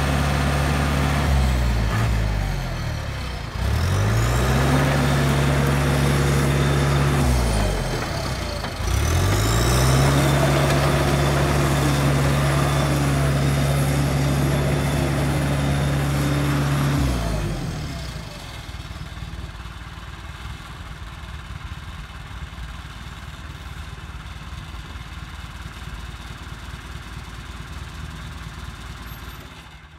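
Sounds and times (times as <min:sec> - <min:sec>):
diesel dozer engine revving: 0:00.0 - 0:20.4.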